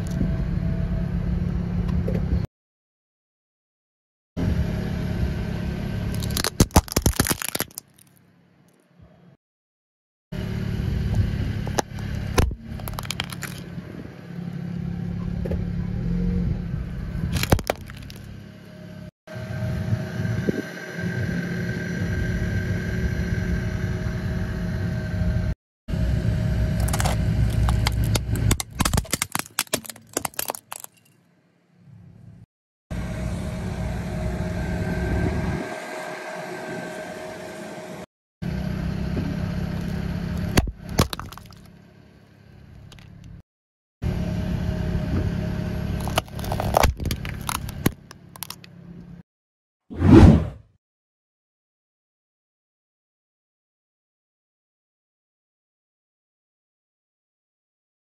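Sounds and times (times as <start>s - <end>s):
plastic crackling under tyre: 6.1s - 8.2s, 11.7s - 13.6s, 17.3s - 18.3s, 26.8s - 31.0s, 39.7s - 41.7s, 46.0s - 48.7s
car engine running slowly: 10.4s - 28.5s, 38.5s - 43.4s, 44.0s - 49.2s.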